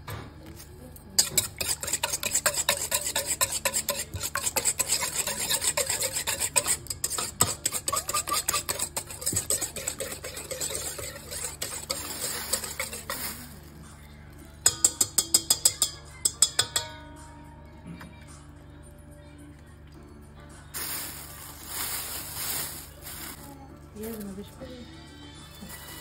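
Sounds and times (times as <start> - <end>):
whisk clicking against metal bowl: 1.2 - 13.2, 14.6 - 16.9.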